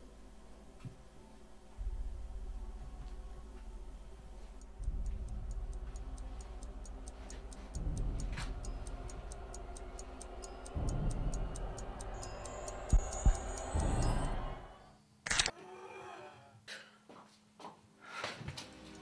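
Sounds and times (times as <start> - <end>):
deep low drone: 1.6 - 14.8
rapid even ticking: 2.3 - 14.5.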